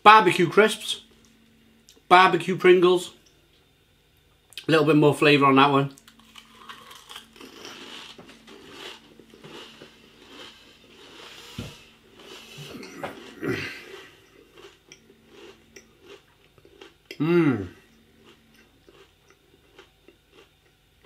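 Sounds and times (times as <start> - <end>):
person crunching crisps: 6.0 - 11.5, 12.1 - 16.9, 17.5 - 20.5.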